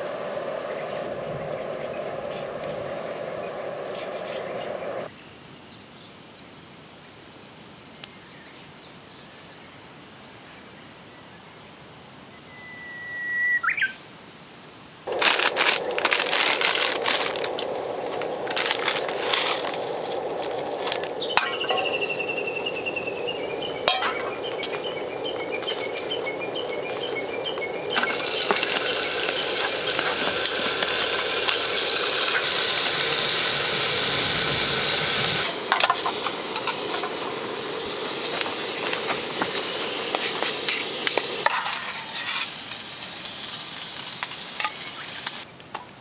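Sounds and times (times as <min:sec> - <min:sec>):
meat sizzling in a grill pan: 0:27.9 - 0:45.4.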